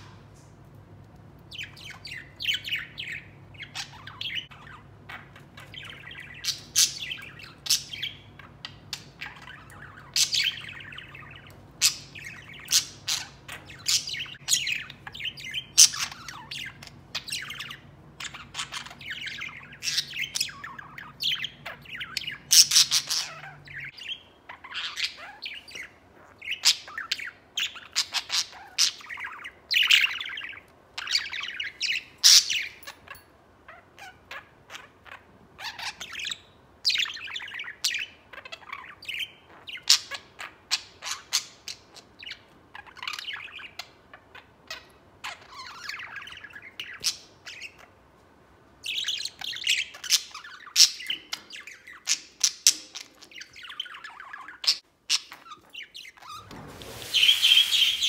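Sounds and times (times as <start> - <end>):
budgerigar chirping: 1.5 - 33.1.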